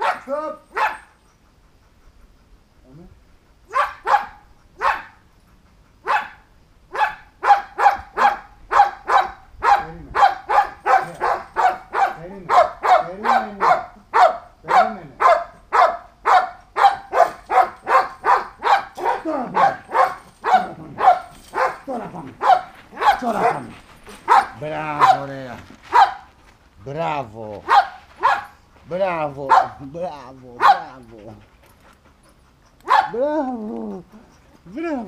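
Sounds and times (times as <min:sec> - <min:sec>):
dog barking: 0:00.0 - 0:01.2, 0:03.7 - 0:05.2, 0:06.0 - 0:25.3, 0:25.9 - 0:26.3, 0:27.7 - 0:28.6, 0:29.5 - 0:29.9, 0:30.6 - 0:31.0, 0:32.8 - 0:33.2.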